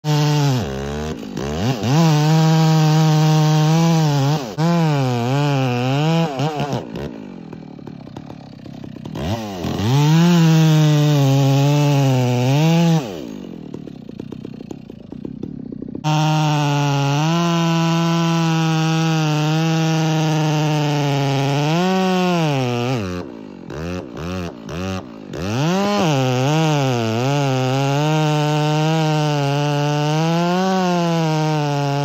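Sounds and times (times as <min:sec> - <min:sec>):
chainsaw cutting wood: 0:00.0 - 0:32.0
chainsaw idling: 0:00.1 - 0:32.0.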